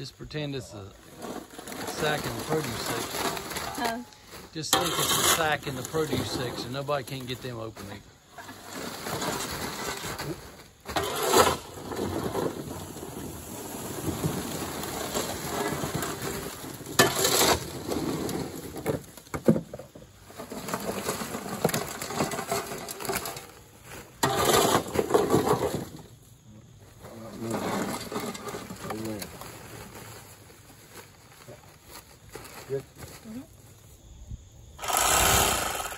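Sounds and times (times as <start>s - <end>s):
dry corn rattling: 1.1s - 19.2s, 27.0s - 33.4s, 34.8s - 35.9s.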